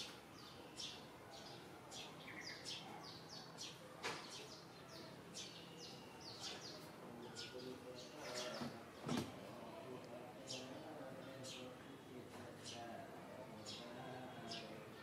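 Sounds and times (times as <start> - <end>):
small birds chirping: 0.0 - 9.3, 10.2 - 15.0
faint background noise: 0.0 - 15.0.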